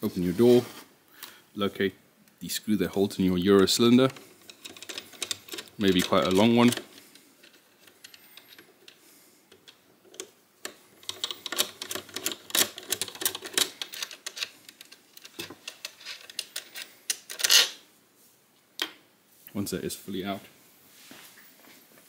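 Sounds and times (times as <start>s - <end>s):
screw clicking as it turns: 4.1s - 8.7s.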